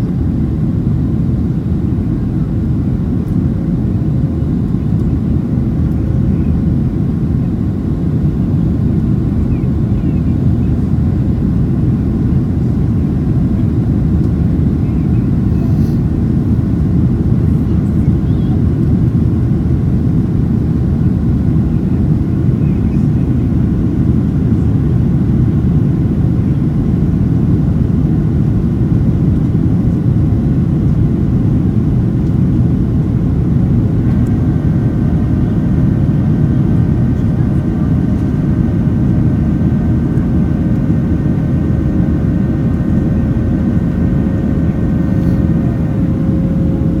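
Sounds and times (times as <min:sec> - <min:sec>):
airplane cabin engine rumble: 0:00.0 - 0:47.0.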